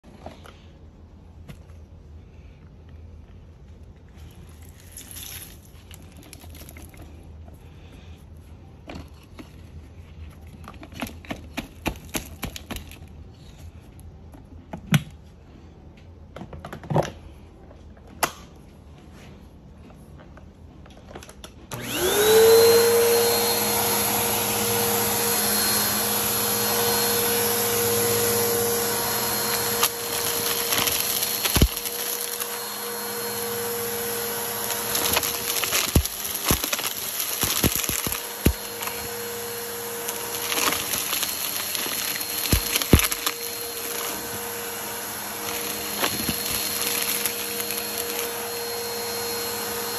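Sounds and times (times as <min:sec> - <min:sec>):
vacuum cleaner motor whine: 0:21.0 - 0:49.9
clicks and crackles: 0:29.8 - 0:32.5, 0:34.9 - 0:39.1, 0:40.1 - 0:44.1
debris crackling in vacuum: 0:34.6 - 0:39.2, 0:40.0 - 0:44.3.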